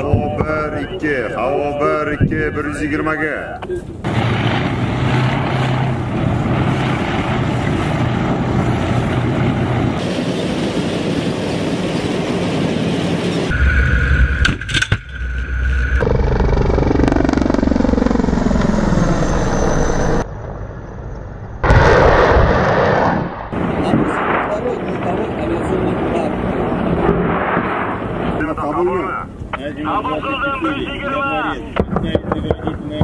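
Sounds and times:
tank engines humming: 0:00.0 - 0:21.9
deep rumble: 0:03.9 - 0:10.0, 0:13.4 - 0:29.6
whine falling in pitch: 0:13.5 - 0:22.8.

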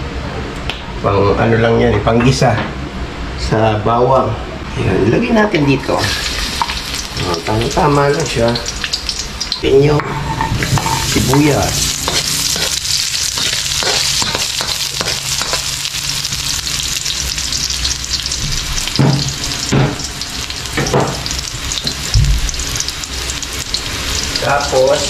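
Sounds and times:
onion sizzling in hot oil: 0:05.3 - 0:25.0
metal spatula scraping a wok: 0:09.5 - 0:15.7.

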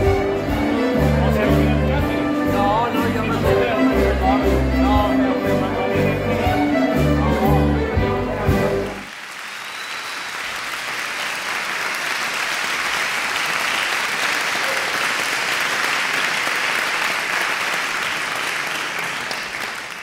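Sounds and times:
audience applauding: 0:08.8 - 0:20.0.

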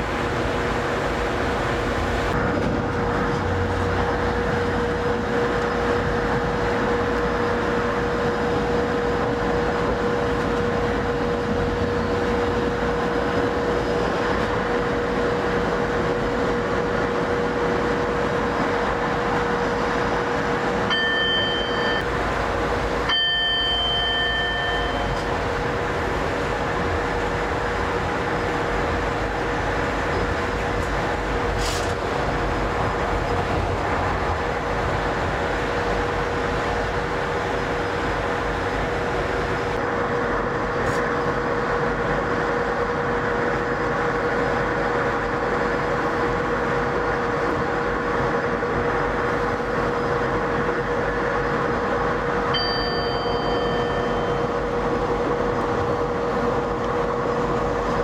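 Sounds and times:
electric locomotive running: 0:00.0 - 0:58.0
steady whine: 0:00.0 - 0:58.0
short high beeps: 0:20.9 - 0:22.0, 0:23.1 - 0:25.2, 0:52.6 - 0:54.5.

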